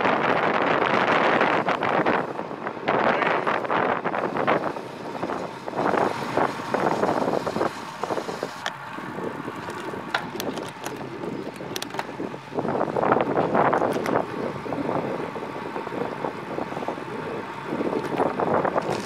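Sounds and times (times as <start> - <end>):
bicycle tyre noise on road: 0.0 - 19.0
wind buffeting microphone: 0.0 - 19.0
sharp clicks: 9.6 - 12.1.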